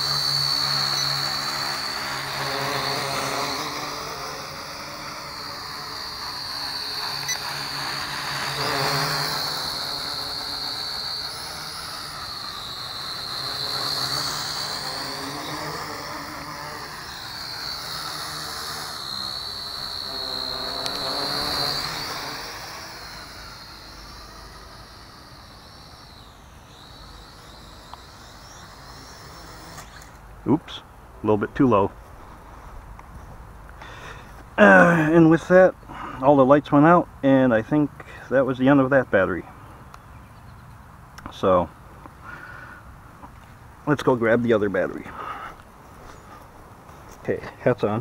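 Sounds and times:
toy drone buzzing whine: 0.0s - 30.9s, 33.8s - 36.0s, 39.1s - 48.0s.

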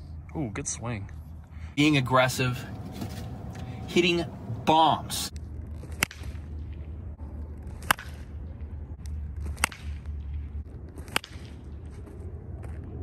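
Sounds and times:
low steady rumble: 0.0s - 13.0s
baseball bat hitting ball: 7.7s - 8.4s, 9.4s - 10.2s, 11.0s - 11.7s.

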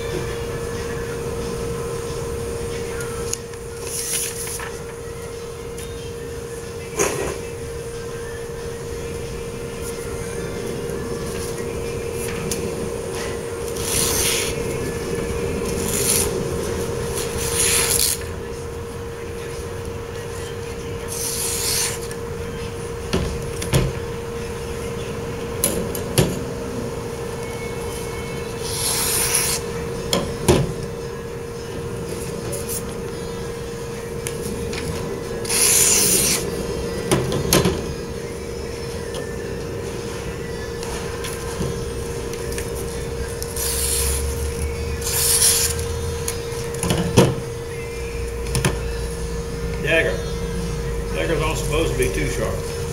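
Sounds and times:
steady hum: 0.0s - 52.9s
blade slicing paper: 13.8s - 14.6s, 17.3s - 18.3s, 21.1s - 22.2s, 28.6s - 29.6s, 35.4s - 36.5s, 45.0s - 45.8s
knife slicing paper: 13.8s - 14.6s, 21.1s - 22.1s, 28.6s - 29.6s.

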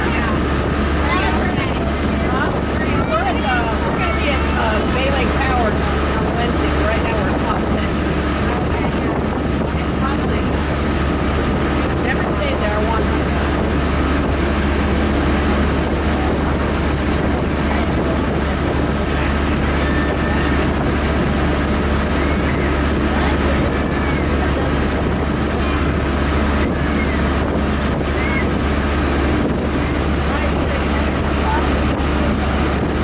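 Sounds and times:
boat engine droning: 0.0s - 33.0s
water noise: 0.0s - 33.0s
wind: 0.0s - 33.0s.

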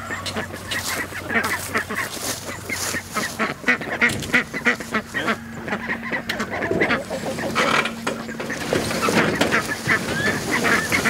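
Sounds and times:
ducks quacking: 0.0s - 11.0s.

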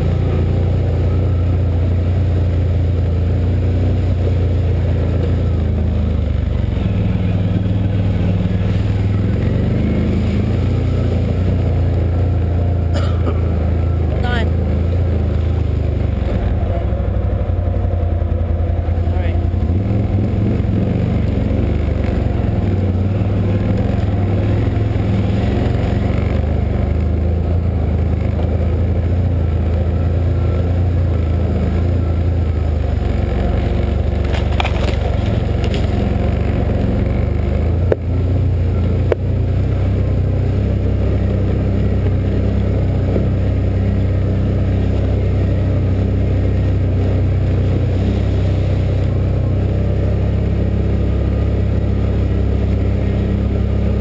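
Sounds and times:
atv engine running: 0.0s - 54.0s
brush scraping along machine: 6.2s - 16.6s, 32.8s - 37.6s.

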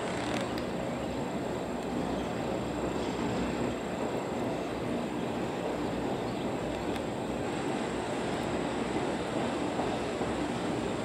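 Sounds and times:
train wheels rumbling on bridge: 0.0s - 11.0s.

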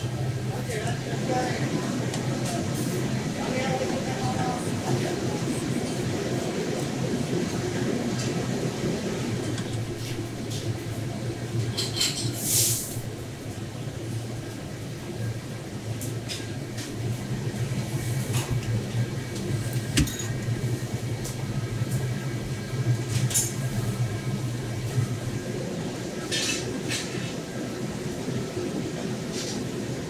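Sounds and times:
kitchen machinery humming: 0.0s - 30.0s.

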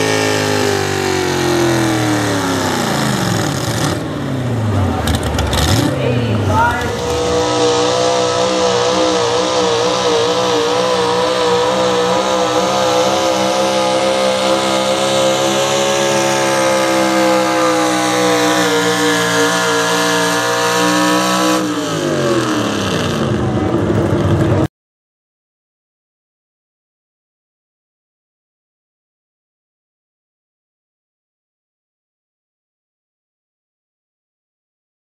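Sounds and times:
diesel truck engine under load: 0.0s - 24.7s.

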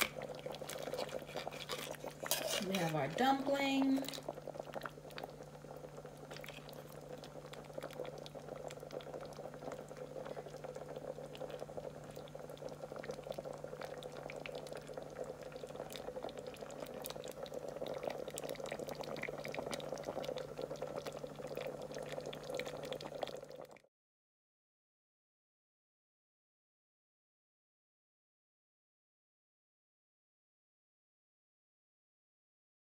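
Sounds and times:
low steady hum: 0.0s - 23.8s
sauce bubbling in a pot: 0.0s - 23.9s.

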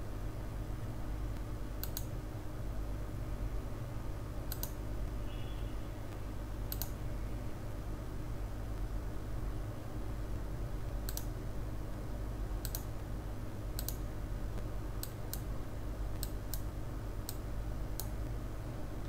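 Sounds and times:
steady low hum: 0.0s - 19.0s
computer mouse clicking: 1.8s - 2.1s, 4.5s - 4.8s, 6.7s - 7.0s, 11.0s - 11.3s, 12.6s - 13.0s, 13.8s - 14.0s, 18.0s - 18.2s.

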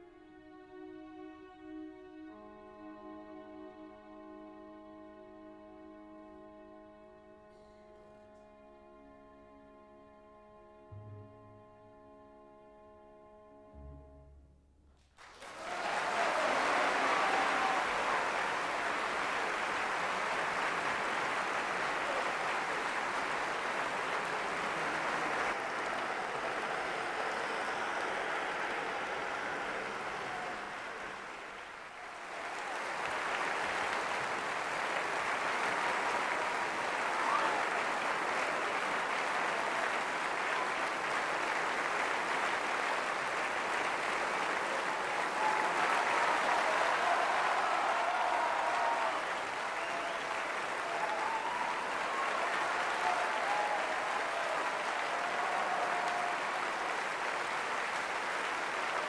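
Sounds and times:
audience applauding: 15.1s - 59.0s.

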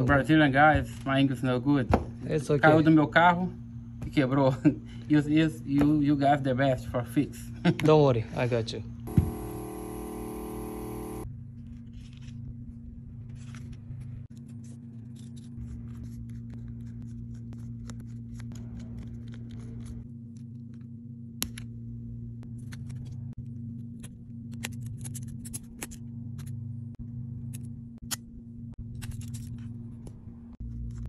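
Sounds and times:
low hum: 8.9s - 31.0s.

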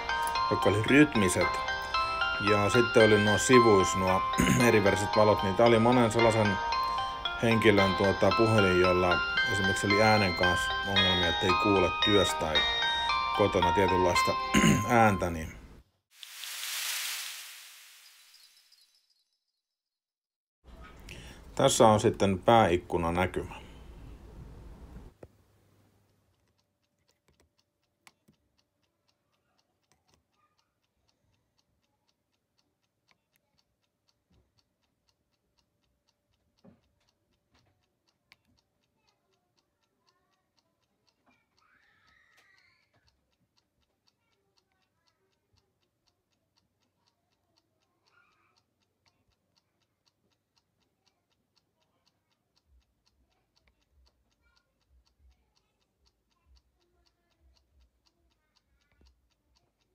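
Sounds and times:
faint fast regular ticking: 20.8s - 59.9s.

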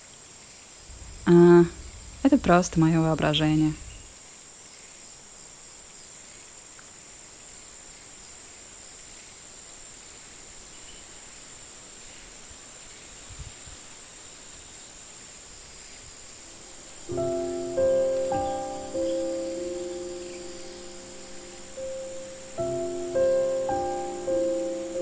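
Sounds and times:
forest ambience hiss: 0.0s - 25.0s
faint low thump: 0.9s - 4.1s
insect high-pitched buzz: 9.0s - 25.0s.

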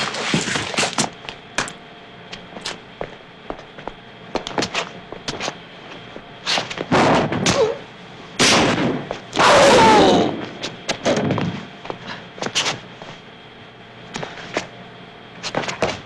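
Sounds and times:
loud scuffles: 2.6s - 7.4s, 15.4s - 16.0s.

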